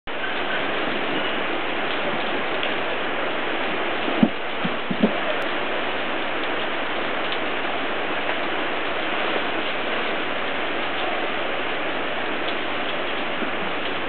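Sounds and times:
raindrop ticks: 0.1s - 2.9s, 4.0s - 5.6s, 6.2s - 7.6s, 9.2s - 11.2s, 12.3s - 14.0s
heavy rain on canvas: 0.1s - 14.0s.

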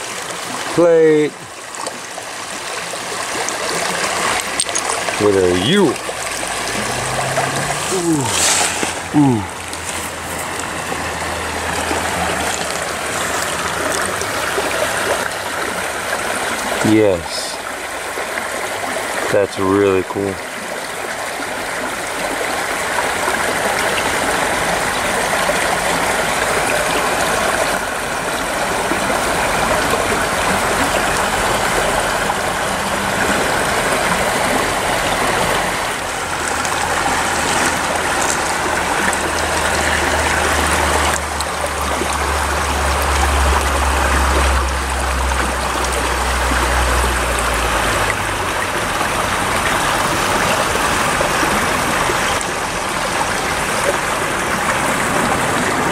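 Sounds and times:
creek water trickling over stones: 0.0s - 55.9s
low rumble: 6.0s - 9.8s.

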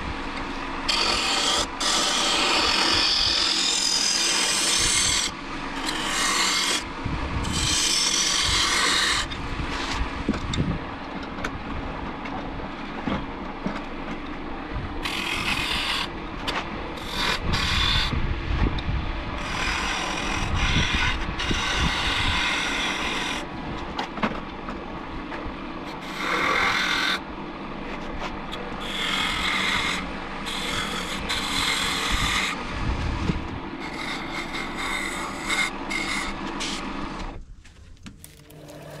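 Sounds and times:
wood lathe humming: 0.0s - 10.0s, 15.0s - 16.1s, 17.0s - 18.1s, 19.4s - 23.5s, 25.8s - 27.3s, 27.9s - 32.8s, 33.4s - 37.3s.

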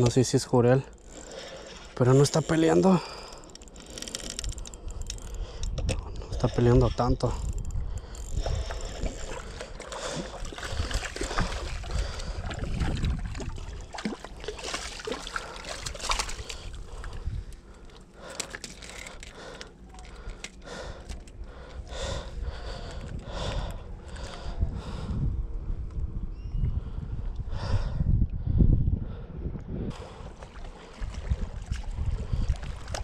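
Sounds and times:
fishing reel cranking: 0.7s - 11.0s, 18.2s - 21.4s
wind on microphone: 4.4s - 15.0s, 21.8s - 33.0s
water splashing against rocks: 9.3s - 17.1s.

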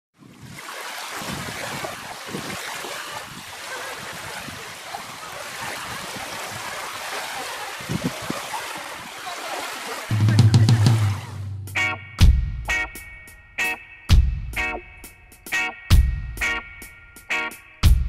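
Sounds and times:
wind buffeting microphone: 0.2s - 9.2s
waves lapping on sandy shore: 0.2s - 11.4s.

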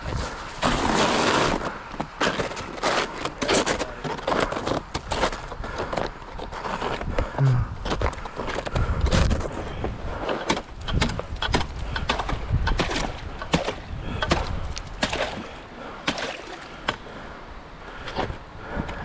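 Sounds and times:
snow crunching underfoot: 0.0s - 5.5s.

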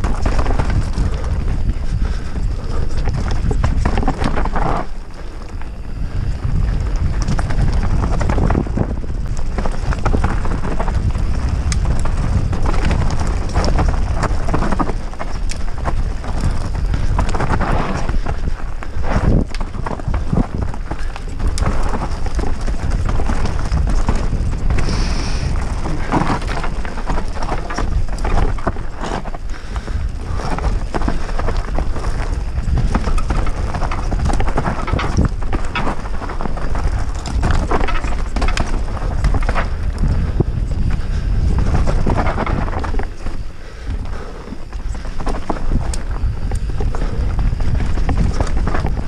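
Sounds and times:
bike knocking and rattling over bumps: 0.0s - 49.0s
wind rumble on microphone: 0.0s - 49.0s.

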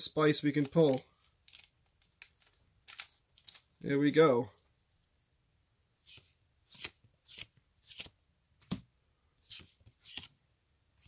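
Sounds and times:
cards swishing: 6.0s - 8.2s, 9.4s - 10.4s.

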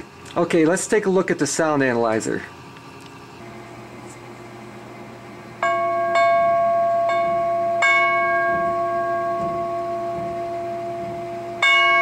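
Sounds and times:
metal wind chime tube ringing: 5.6s - 12.0s.

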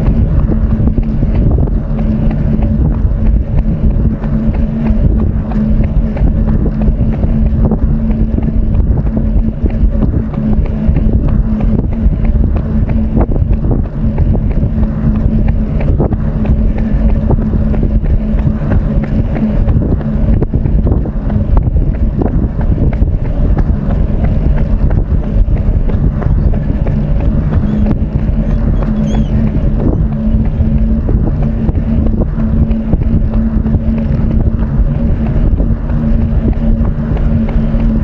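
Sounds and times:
steady low hum: 0.0s - 38.0s
wind buffeting microphone: 0.0s - 38.0s.

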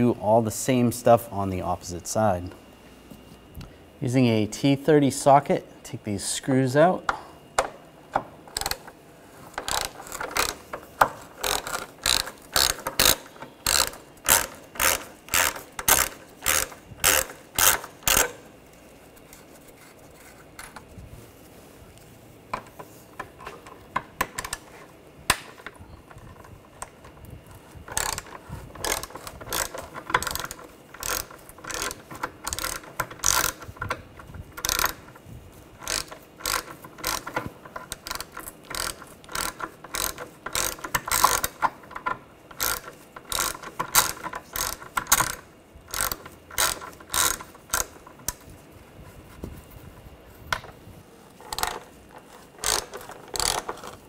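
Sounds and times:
hand ratchet clicking: 8.5s - 18.5s, 25.3s - 35.2s, 35.8s - 48.5s, 51.4s - 54.0s.

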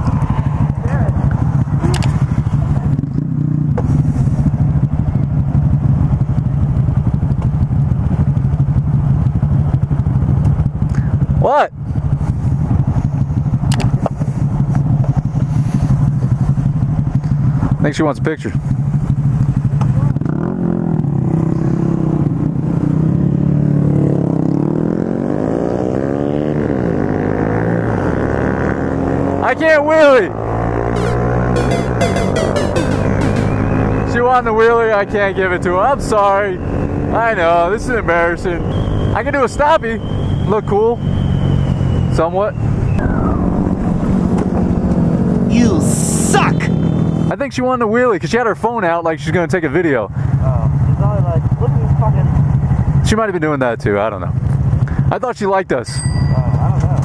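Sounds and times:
motorcycle engine revving: 0.0s - 9.9s, 18.8s - 39.3s, 40.0s - 47.3s
motorcycle engines idling: 0.0s - 21.8s, 49.6s - 53.1s.

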